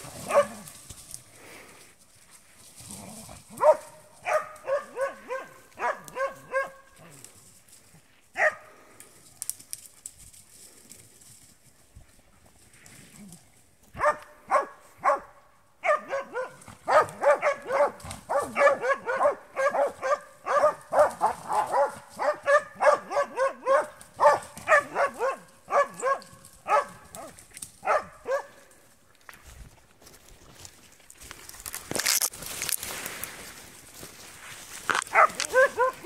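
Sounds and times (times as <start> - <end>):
dog barking: 0.2 - 0.7, 3.6 - 6.9, 8.4 - 8.7, 14.0 - 28.6, 35.1 - 36.0.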